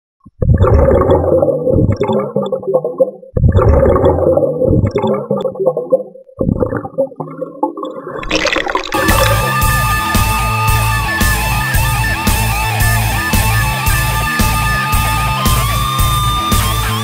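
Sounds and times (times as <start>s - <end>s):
underwater gurgling bubbles: 0.3s - 9.9s.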